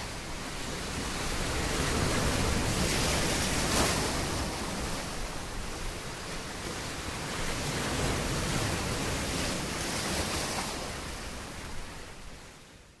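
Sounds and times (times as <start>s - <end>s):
sea waves surf: 0.0s - 12.2s.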